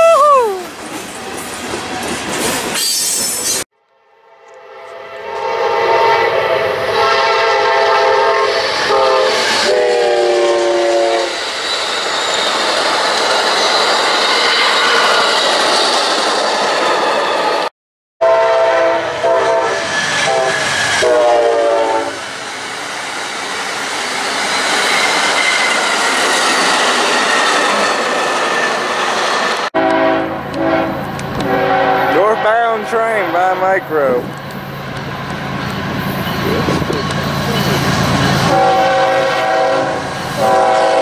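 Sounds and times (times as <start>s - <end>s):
train air horn blasts: 4.1s - 11.4s, 18.2s - 22.2s, 29.8s - 34.2s, 38.4s - 41.0s
train wheels rumbling over rails: 5.3s - 17.6s, 19.7s - 41.0s.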